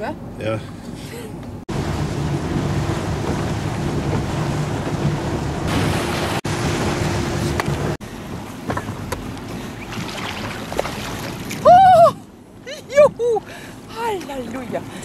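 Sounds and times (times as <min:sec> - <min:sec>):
motorboat engine running: 0:01.5 - 0:12.6
wind buffeting microphone: 0:01.7 - 0:12.3
water rushing past hull: 0:01.7 - 0:15.0.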